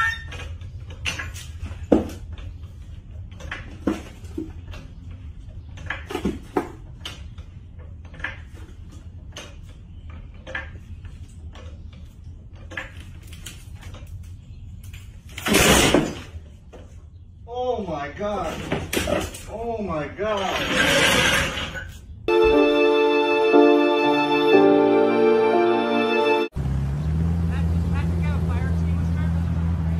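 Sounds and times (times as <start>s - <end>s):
floor jack metallic clicks and clanks: 0.0s - 16.8s.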